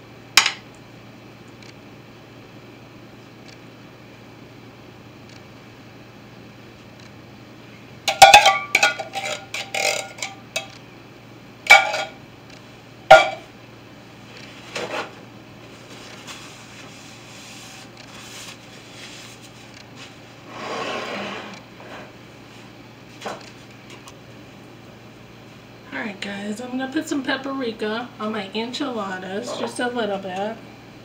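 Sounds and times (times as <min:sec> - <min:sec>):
metal spoon clinking and scraping: 0:08.1 - 0:10.7.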